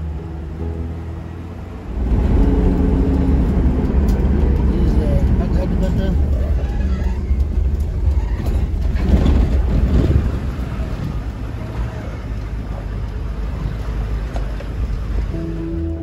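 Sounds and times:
music: 0.0s - 2.8s, 15.3s - 16.0s
car engine and road noise: 0.0s - 16.0s.

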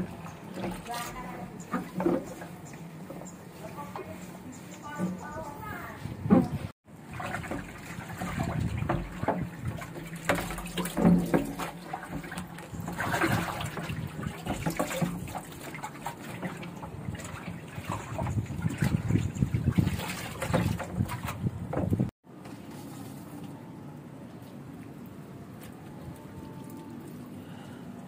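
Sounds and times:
water splashing and dripping: 6.9s - 22.1s
wet sponge scrubbing metal: 7.1s - 22.1s.

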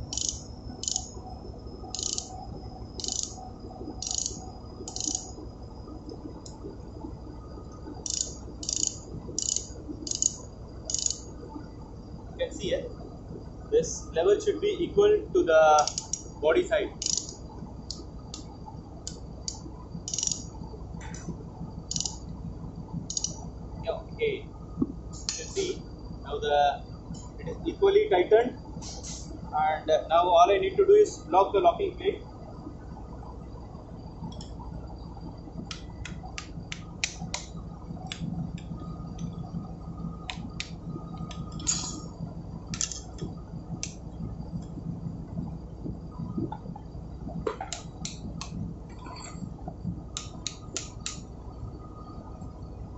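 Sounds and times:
ratchet spanner clicking: 0.0s - 1.2s, 2.0s - 2.3s, 3.0s - 3.4s, 4.0s - 5.3s, 8.0s - 11.2s, 15.8s - 16.3s, 17.0s - 18.4s, 19.1s - 20.5s, 21.9s - 22.2s, 23.1s - 23.4s, 42.7s - 44.0s
steady low hum: 0.0s - 52.9s
screwdriver clicking on metal: 15.8s - 16.2s, 42.8s - 43.2s.

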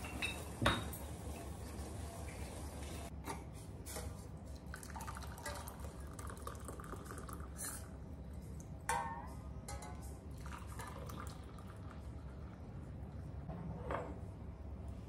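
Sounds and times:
tea trickling into mugs: 4.5s - 8.8s, 10.3s - 12.8s.

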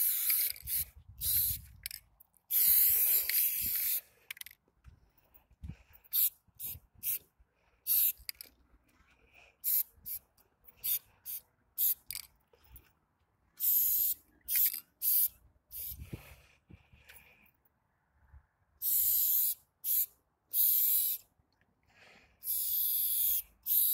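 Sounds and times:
spray paint can spraying: 0.0s - 4.5s, 6.1s - 7.2s, 7.9s - 8.5s, 9.6s - 10.2s, 10.8s - 12.3s, 13.6s - 16.2s, 18.8s - 21.3s, 22.4s - 23.9s.

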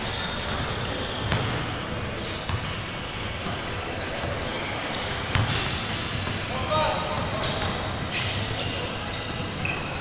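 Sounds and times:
basketball bouncing on gym floor: 0.4s - 4.4s, 5.2s - 8.5s.

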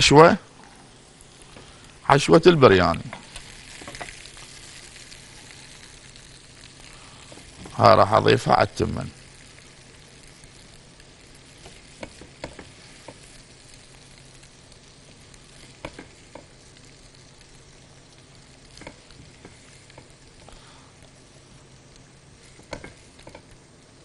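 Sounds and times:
faint sizzle: 0.0s - 24.0s.

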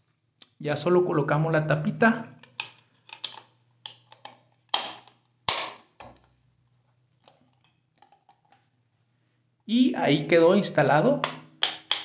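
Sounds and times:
plastic cover plate snapping: 2.6s - 6.3s, 11.2s - 12.0s.

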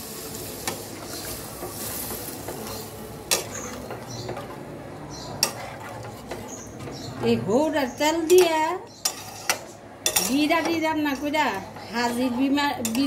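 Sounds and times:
steady hiss from pan: 0.0s - 3.1s
metal spatula scraping pan: 1.6s - 4.5s, 5.2s - 7.1s, 8.1s - 13.0s.

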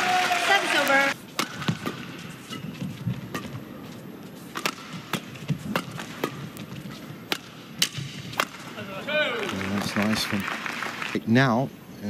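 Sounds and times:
rackets striking shuttlecock: 0.8s - 3.6s, 4.5s - 8.8s.

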